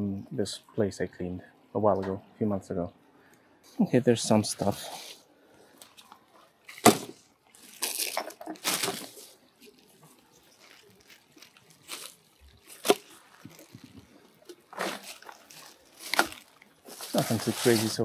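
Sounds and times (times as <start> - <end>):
rustling: 4.3 - 18.0.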